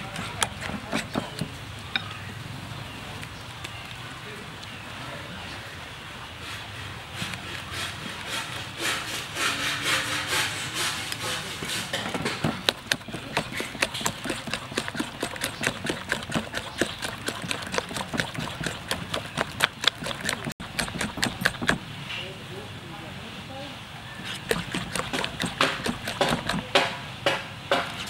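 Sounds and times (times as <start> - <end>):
whisk beating batter in bowl: 0.0 - 1.6, 7.5 - 21.8, 24.2 - 27.0.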